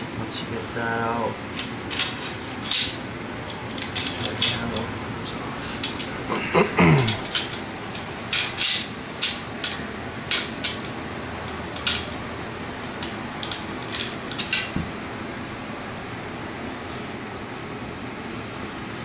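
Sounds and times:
rifle parts clicking and clinking: 1.6s - 4.9s, 7.1s - 10.9s, 11.5s - 12.2s, 12.8s - 14.9s.

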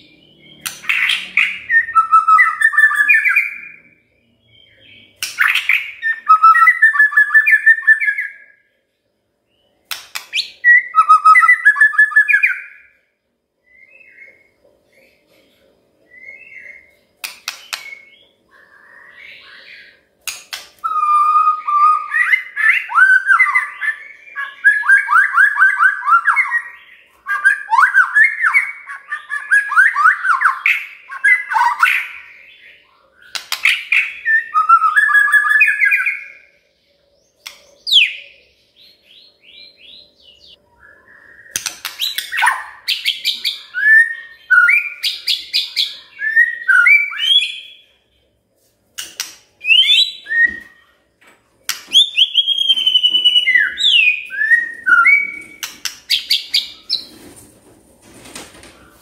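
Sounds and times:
bird singing whistled notes: 0.0s - 8.7s, 10.3s - 12.9s, 20.8s - 36.5s, 37.4s - 47.9s, 49.6s - 51.0s, 51.9s - 57.1s.

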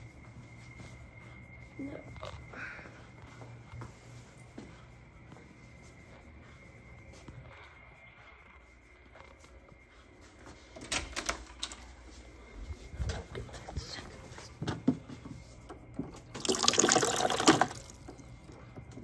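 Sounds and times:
water running into a container: 16.3s - 18.2s.

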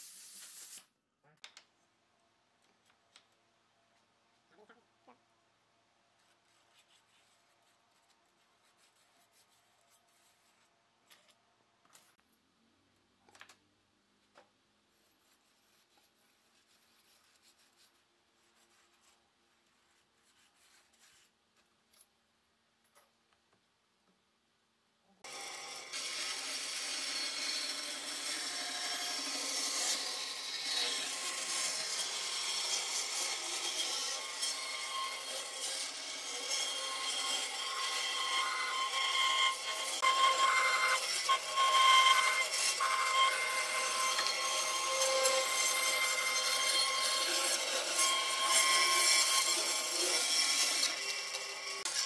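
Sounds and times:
pencil scratching: 14.9s - 21.3s
bandsaw cutting wood: 25.2s - 52.0s.

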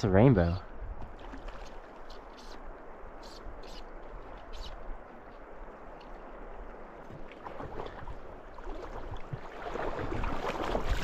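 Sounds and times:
water splashing: 1.0s - 11.0s.

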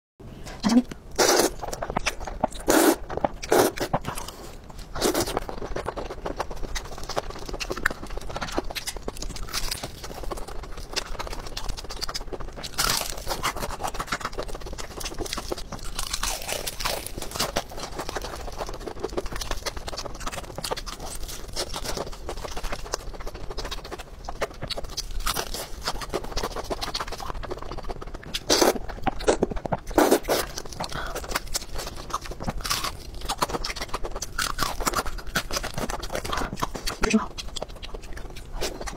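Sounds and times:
wet chewing: 0.5s - 38.9s
slurping noodles: 0.7s - 1.8s, 2.6s - 5.5s, 29.9s - 30.6s
crunching fried chicken: 1.2s - 38.9s.

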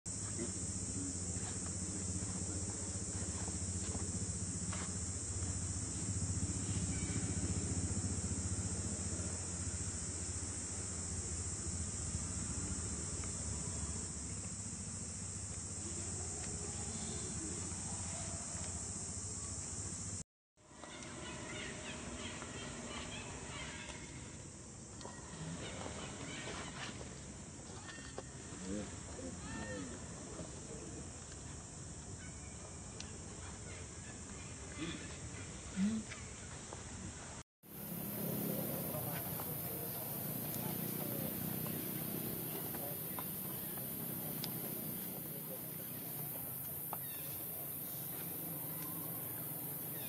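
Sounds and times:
high-pitched insect drone: 0.1s - 20.2s, 37.7s - 50.0s
faint chirps: 37.7s - 50.0s.

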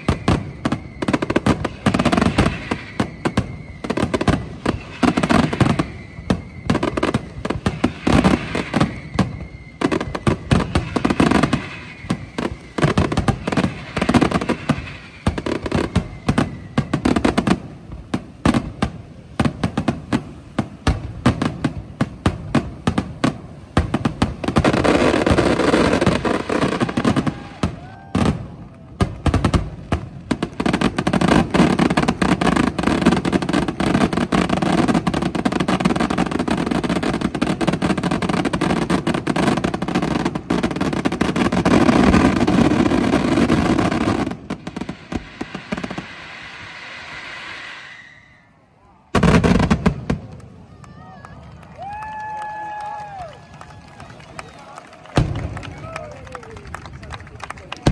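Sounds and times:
firework crackling: 0.0s - 57.9s
fireworks bangs: 0.0s - 57.9s
whistling fireworks: 0.0s - 57.9s.

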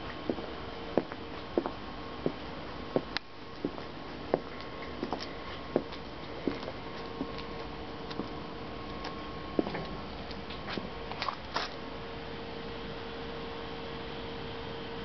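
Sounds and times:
footsteps on metal stairs: 0.0s - 11.7s
steady hum: 0.0s - 15.0s.

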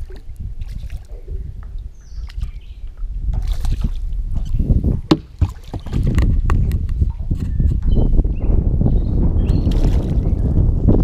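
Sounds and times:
camera handling rumble and rustling: 4.4s - 7.9s.

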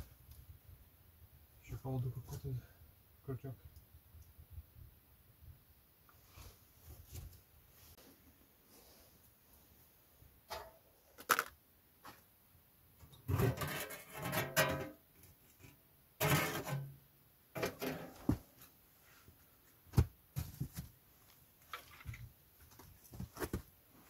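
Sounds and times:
metal stove door scraping and rattling: 13.3s - 15.0s, 16.2s - 16.9s, 17.6s - 18.3s.

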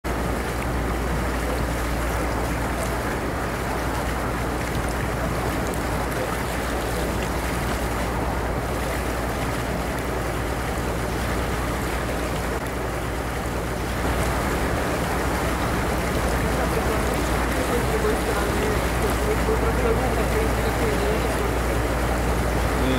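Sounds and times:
motorboat engine drone: 0.0s - 22.9s
water rushing along hull: 0.0s - 22.9s.

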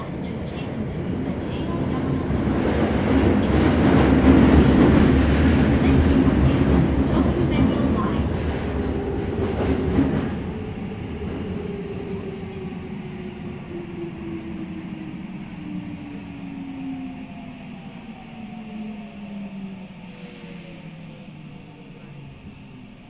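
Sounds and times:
train rumble: 0.0s - 23.0s.

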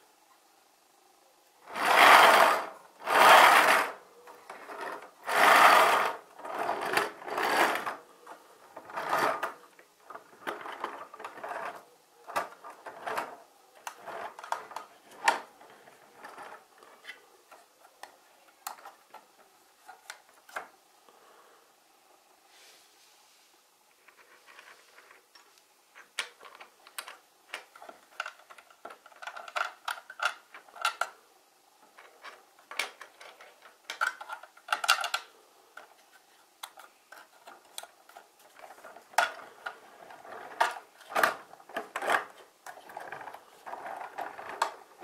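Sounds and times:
toy truck wheels whirring: 1.6s - 8.0s, 8.8s - 9.6s
plastic toy clicks and knocks: 26.0s - 31.2s, 31.9s - 35.9s.

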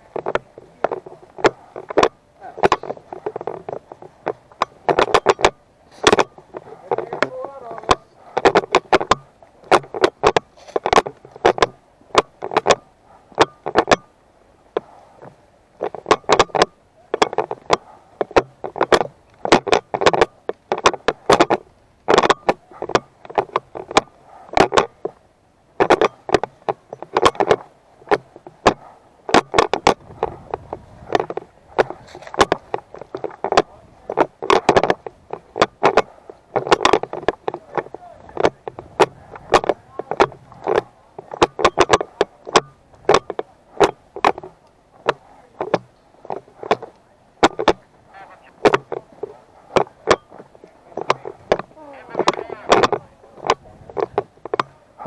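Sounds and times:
camera rattling in plastic mount: 0.0s - 55.0s.

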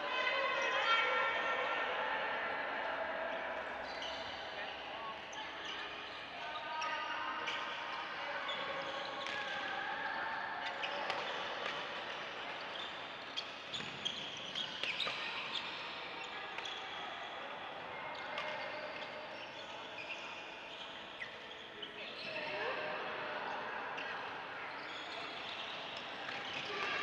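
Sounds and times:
shoes squeaking on court floor: 3.8s - 9.6s, 10.6s - 17.0s, 18.1s - 22.6s, 23.5s - 27.0s.

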